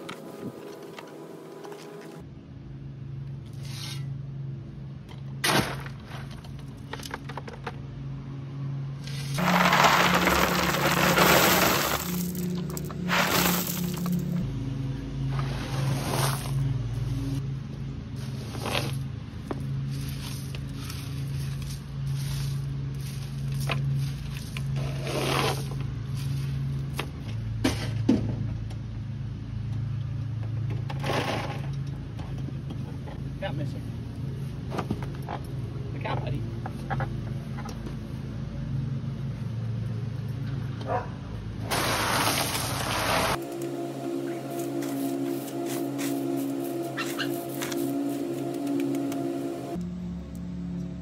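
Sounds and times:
low hum: 0.0s - 27.6s, 41.4s - 51.0s
shovel scraping into gravel: 9.0s - 14.4s, 15.4s - 16.6s, 18.2s - 19.0s, 19.9s - 26.6s, 41.7s - 43.4s
rush of gravel: 9.0s - 14.5s, 15.3s - 16.7s, 18.2s - 19.1s, 19.8s - 27.0s, 41.6s - 43.5s
gravel rattling: 9.1s - 14.5s
small stones clattering: 9.3s - 14.4s
steady low hum: 43.3s - 51.0s.

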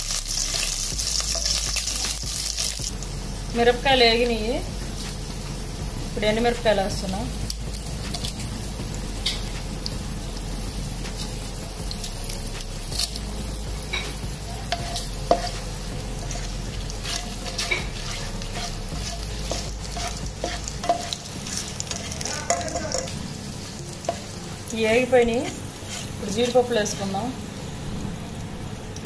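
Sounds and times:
chillies sizzling in oil: 0.0s - 29.0s
spatula scraping a pan: 14.0s - 23.2s, 25.3s - 27.2s.

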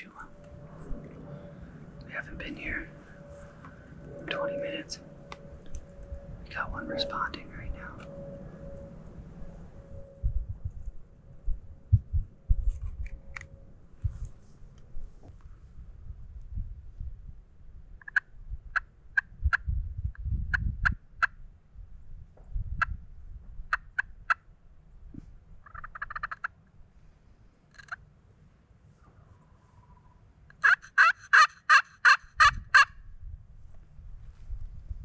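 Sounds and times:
rough rattling call: 25.6s - 26.5s
turkey yelping: 25.6s - 26.5s, 29.8s - 32.9s.

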